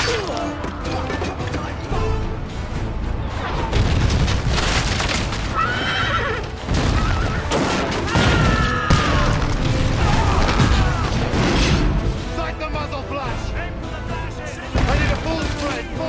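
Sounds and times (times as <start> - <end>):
cannonball explosions and crashes: 6.6 - 12.1.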